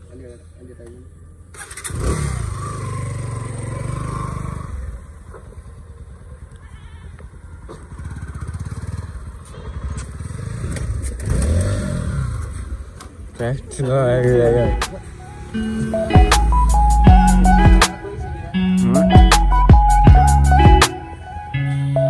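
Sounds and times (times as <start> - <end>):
motorcycle engine revving: 1.4 - 6.6, 7.2 - 13.3.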